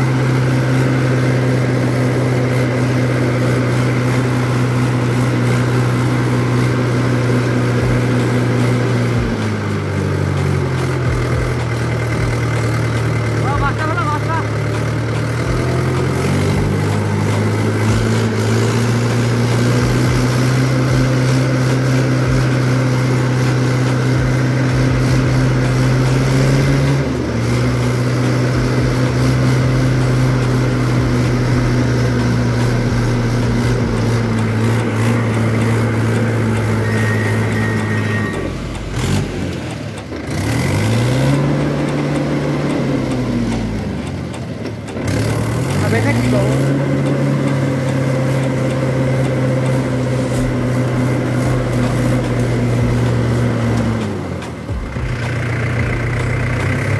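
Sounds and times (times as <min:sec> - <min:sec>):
tractor diesel engine running: 0:00.0 - 0:56.9.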